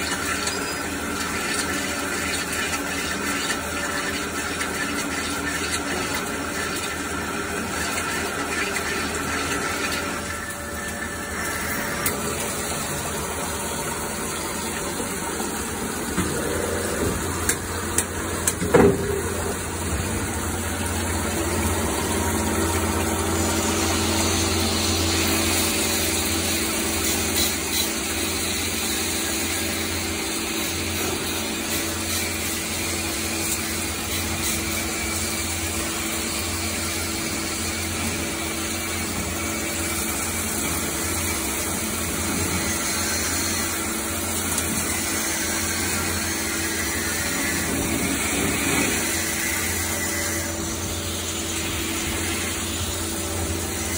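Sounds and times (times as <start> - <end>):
coolant hiss: 0.0 - 53.9
lathe machining metal: 0.0 - 53.9.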